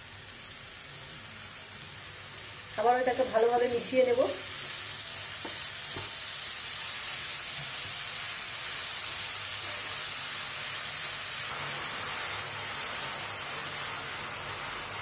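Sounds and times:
papaya sizzling in ghee: 0:00.0 - 0:15.0
wooden spatula stirring in pan: 0:04.5 - 0:15.0.

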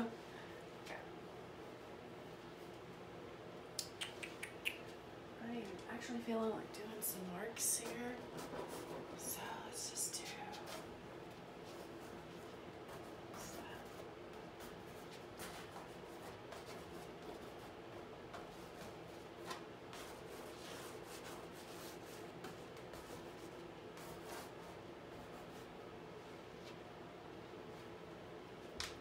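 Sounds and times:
low room hum: 0:00.0 - 0:29.0
scratchy rubs on canvas: 0:07.7 - 0:09.4, 0:11.6 - 0:25.7.

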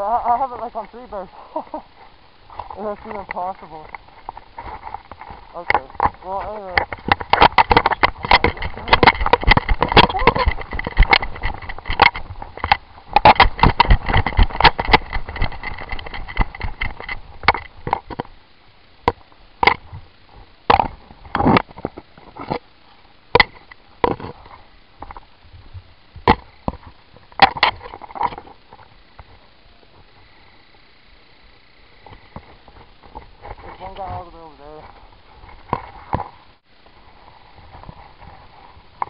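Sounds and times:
gear clattering and thumps: 0:02.9 - 0:18.3.

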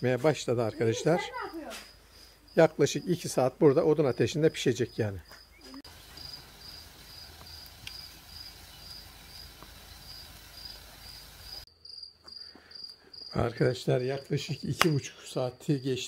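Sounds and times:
cricket chirping: 0:01.2 - 0:13.5.

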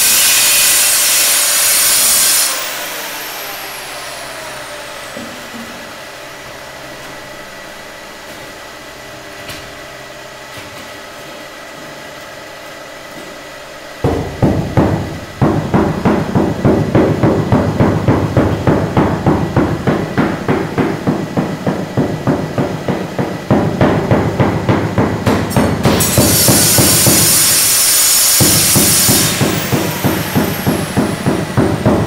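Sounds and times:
steady hum: 0:01.9 - 0:32.0.

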